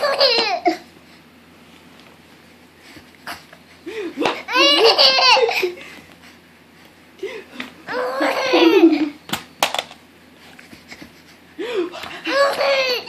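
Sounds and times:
baby giggling: 0:00.0 - 0:00.8, 0:04.2 - 0:05.8, 0:07.9 - 0:09.2, 0:12.2 - 0:13.0.

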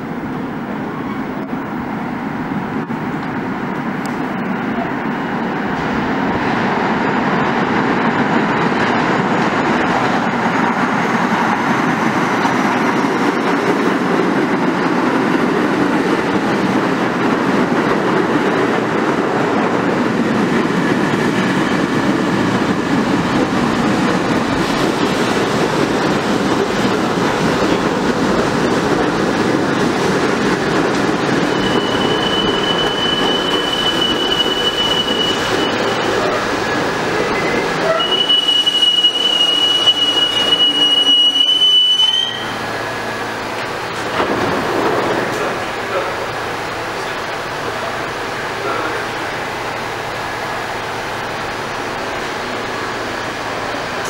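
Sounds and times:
train wheels rumbling on track: 0:00.0 - 0:54.0
high steady brake squeal: 0:31.4 - 0:36.4, 0:37.2 - 0:42.6.

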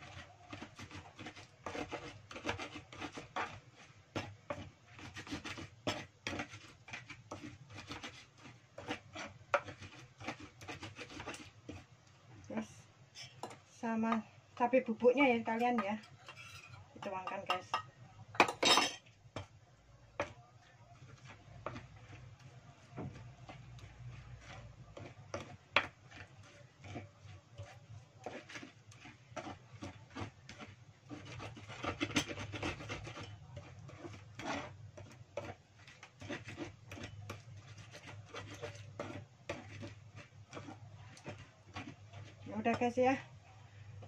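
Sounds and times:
pestle grinding in mortar: 0:00.0 - 0:11.9, 0:20.2 - 0:43.1.

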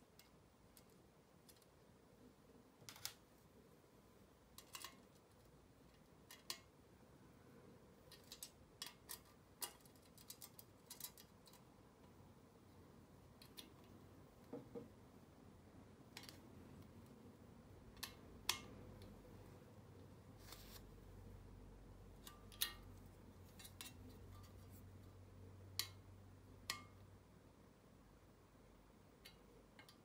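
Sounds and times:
metal parts clicking and clinking: 0:08.1 - 0:11.7.

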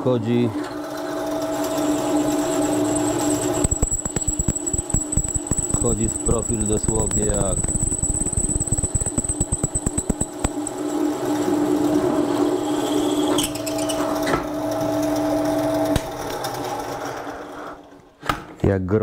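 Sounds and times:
drill press machine hum: 0:00.8 - 0:16.8
drill bit clicking through steel: 0:02.3 - 0:10.8.

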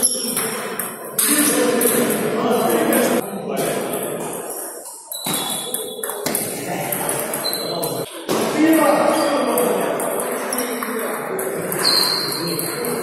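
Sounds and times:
table tennis balls clicking: 0:05.1 - 0:08.1, 0:08.7 - 0:13.0.

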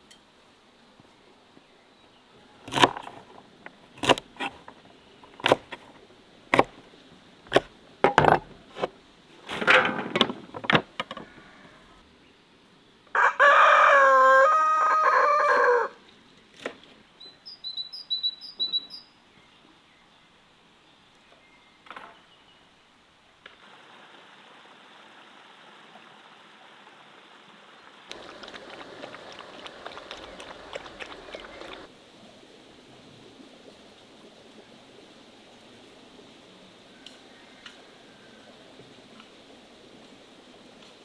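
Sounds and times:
rooster crowing: 0:13.1 - 0:16.0
small birds chirping: 0:17.2 - 0:20.3, 0:28.1 - 0:31.9.

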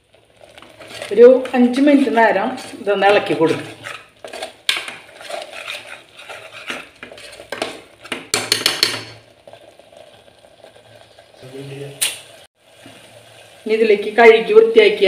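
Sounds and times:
spatula scraping metal pot: 0:00.4 - 0:11.5.

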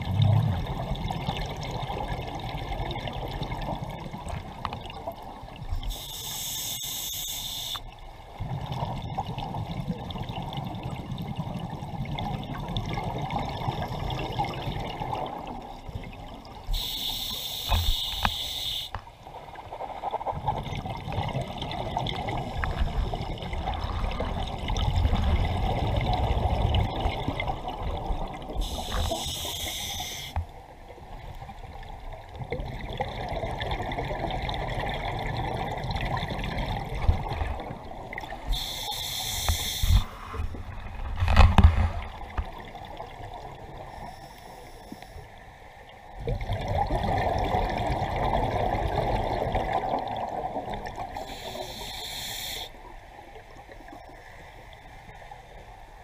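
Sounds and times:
exhaled bubbles underwater: 0:00.0 - 0:06.0, 0:08.3 - 0:16.9, 0:19.6 - 0:43.9, 0:46.1 - 0:51.7
hissing regulator inhalations: 0:05.9 - 0:07.9, 0:16.8 - 0:19.0, 0:28.6 - 0:30.4, 0:38.5 - 0:40.4, 0:51.2 - 0:52.8.

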